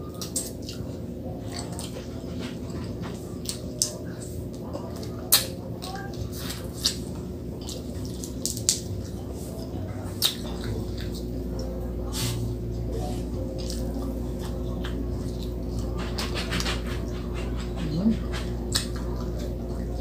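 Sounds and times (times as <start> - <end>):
steady low hum: 0.0 - 20.0
lip smacks and chewing clicks: 10.2 - 11.7, 17.8 - 19.8.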